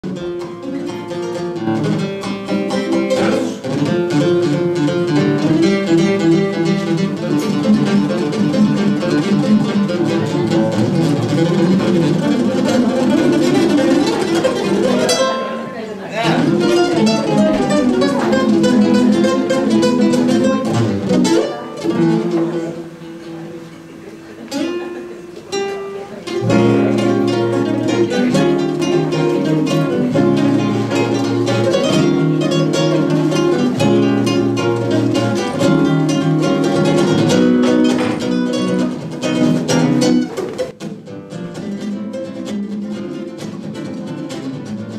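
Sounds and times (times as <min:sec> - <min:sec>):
acoustic guitars playing fast runs: 0:00.0 - 0:44.9.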